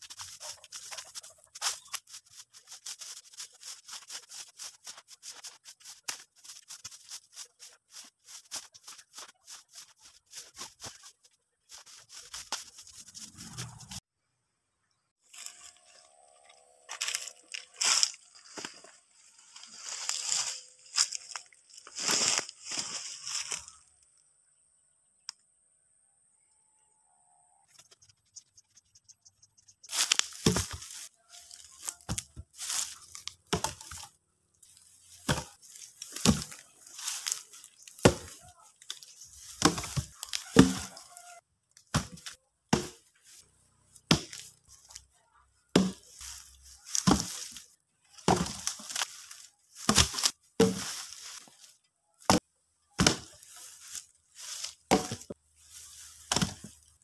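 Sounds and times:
footsteps crunching on dry leaves: 0.0s - 14.0s, 15.2s - 23.9s, 29.9s - 45.1s, 45.8s - 52.4s, 53.0s - 57.0s
wooden logs thudding: 29.9s - 31.0s, 31.8s - 34.1s, 35.1s - 41.0s, 41.9s - 43.1s, 44.1s - 45.0s, 45.7s - 47.6s, 48.2s - 51.4s, 53.0s - 54.0s, 54.8s - 55.4s, 56.2s - 56.8s.

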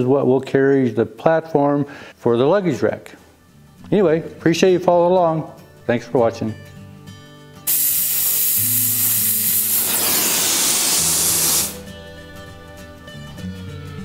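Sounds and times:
gas torch flame hissing: 7.7s - 11.8s.

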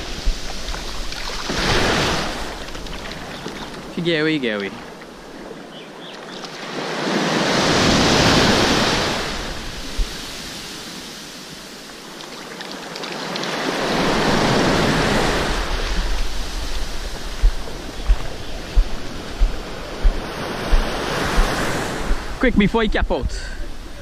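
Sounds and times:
wind on microphone: 0.0s - 3.8s, 7.4s - 10.7s, 13.8s - 24.0s
small waves breaking on sand: 0.0s - 22.5s
short low thumps: 16.0s - 23.4s.

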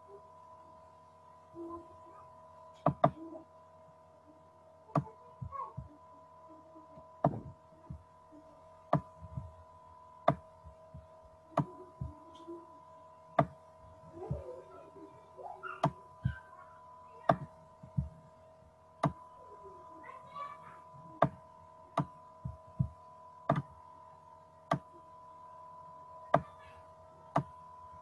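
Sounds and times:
steady electrical hum: 0.0s - 28.0s
soft low thuds: 7.0s - 8.1s, 8.9s - 9.6s, 10.2s - 12.4s, 17.3s - 18.4s, 22.0s - 23.8s.

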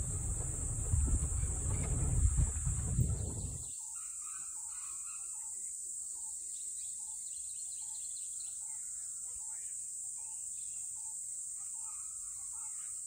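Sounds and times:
low rumble: 0.0s - 3.6s
bird chirps: 0.0s - 5.6s.

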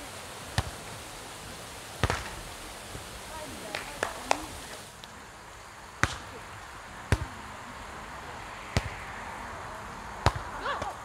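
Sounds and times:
volleyball being struck: 0.6s - 0.8s, 2.0s - 2.4s, 6.0s - 6.4s, 7.1s - 7.4s, 8.7s - 9.0s, 10.2s - 11.0s.

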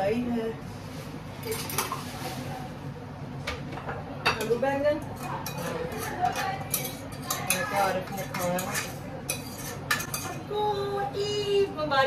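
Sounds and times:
spoon scraping a steel pot: 5.2s - 10.4s.

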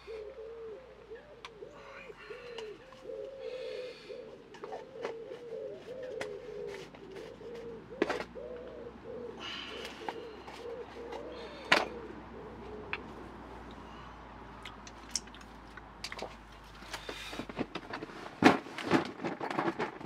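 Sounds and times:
pigeon cooing: 0.0s - 14.4s.

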